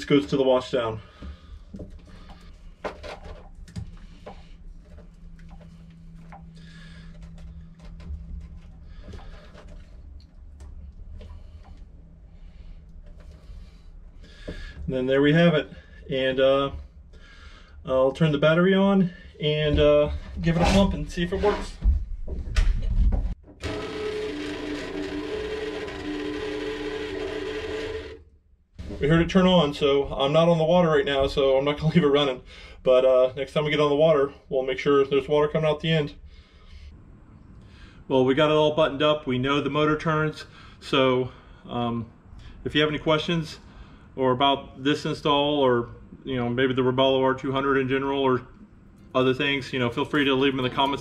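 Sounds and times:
pump motor humming: 0:23.6 - 0:28.2.

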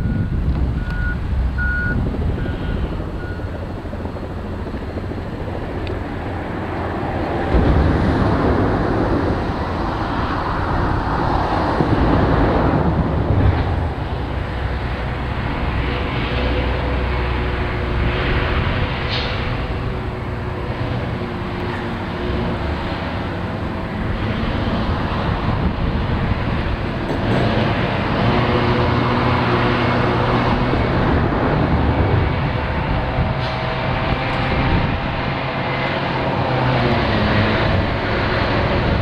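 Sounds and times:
backup alarm beeping: 0:00.0 - 0:03.5
articulated hauler passing: 0:00.0 - 0:39.0
haul truck engine: 0:00.0 - 0:39.0
motor grader diesel engine: 0:00.0 - 0:39.0.

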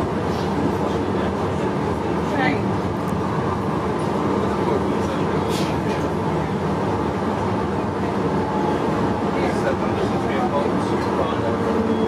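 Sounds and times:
faint passengers' voices: 0:00.0 - 0:12.0
tram wheels rumbling on rail: 0:00.0 - 0:12.0.

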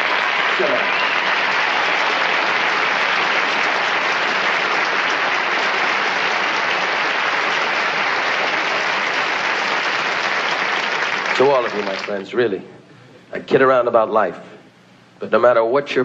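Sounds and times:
audience applauding: 0:00.0 - 0:12.3.

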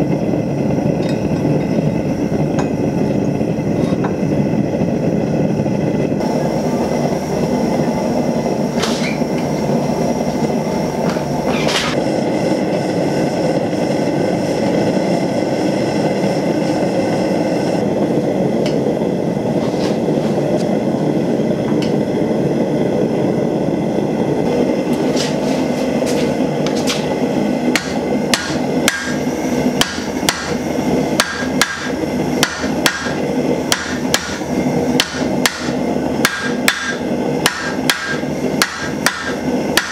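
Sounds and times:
forge burner rushing: 0:00.0 - 0:39.9
hammer striking metal on anvil: 0:27.7 - 0:29.2, 0:29.8 - 0:30.6, 0:31.2 - 0:34.4, 0:35.0 - 0:39.9.

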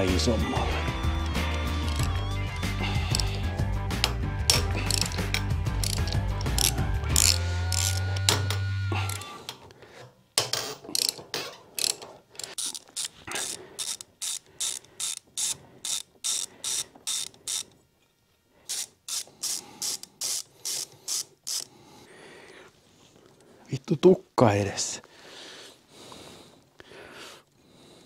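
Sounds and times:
ratchet wrench clicking: 0:01.2 - 0:09.3, 0:10.9 - 0:11.2, 0:11.8 - 0:17.7, 0:18.7 - 0:21.7.

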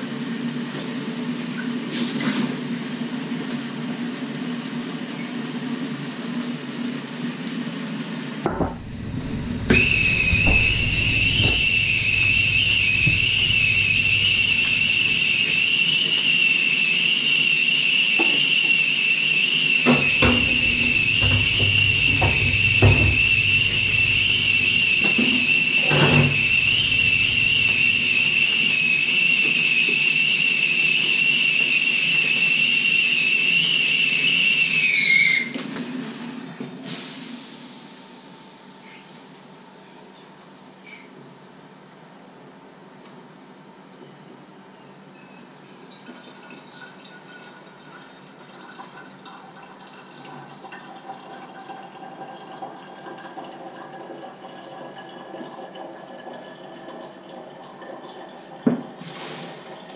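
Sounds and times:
kettle whistling: 0:08.5 - 0:35.7, 0:51.0 - 0:59.9.

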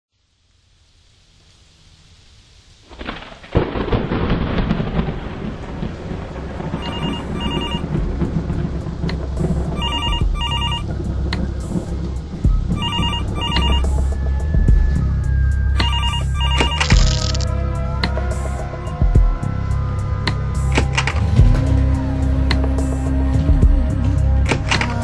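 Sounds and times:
noisy wash with deep rumble: 0:03.7 - 0:16.6
telephone ringing: 0:06.8 - 0:07.9, 0:09.8 - 0:10.8, 0:12.8 - 0:13.9, 0:15.8 - 0:17.4.

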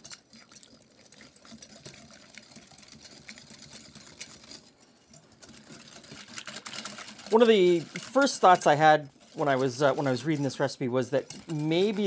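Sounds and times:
wire whisk beating in glass bowl: 0:00.0 - 0:12.0.

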